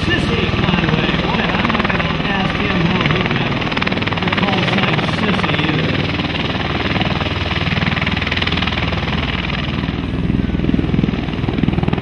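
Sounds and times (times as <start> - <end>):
aircraft rotors and engines running: 0.0 - 12.0.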